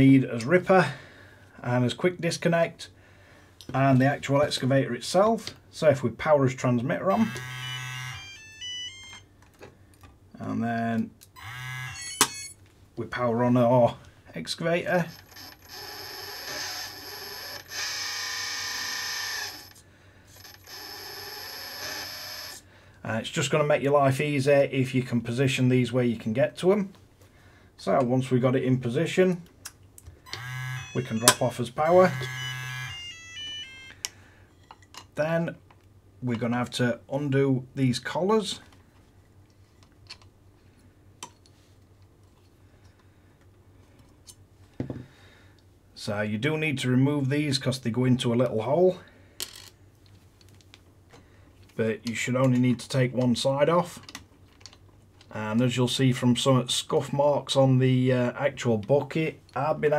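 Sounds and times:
electric hydraulic pump whining: 0:11.4 - 0:12.5, 0:15.2 - 0:19.8, 0:30.3 - 0:34.0.

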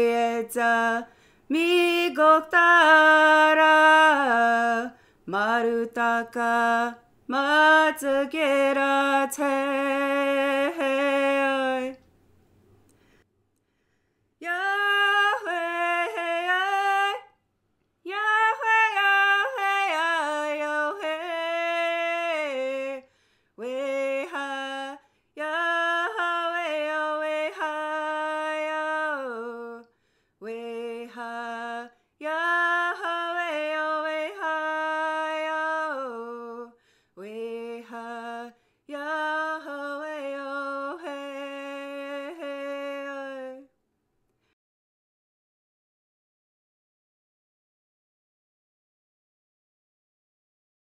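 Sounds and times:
woman singing unaccompanied: 0:00.0 - 0:12.1, 0:14.4 - 0:17.4, 0:18.0 - 0:43.8.

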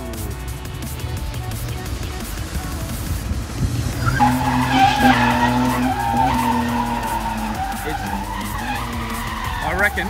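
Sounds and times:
car engine running hard: 0:00.0 - 0:10.0
tyre squeal: 0:04.0 - 0:10.0.

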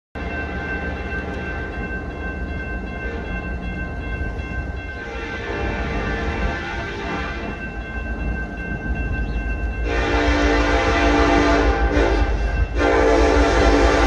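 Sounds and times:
crossing warning bell ringing: 0:00.2 - 0:14.0
locomotive horn blowing: 0:05.0 - 0:07.6, 0:09.8 - 0:14.0.

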